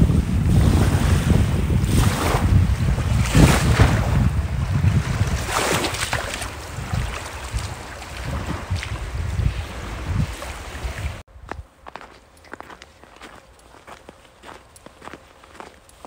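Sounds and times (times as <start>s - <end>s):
small waves washing onto sand: 0.0s - 11.2s
water swishes: 0.0s - 11.2s
wind buffeting microphone: 0.0s - 15.7s.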